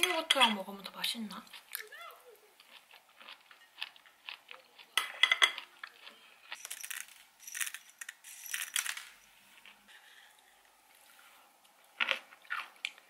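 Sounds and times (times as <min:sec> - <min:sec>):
cutlery clinking on a plate: 0:05.0 - 0:05.7.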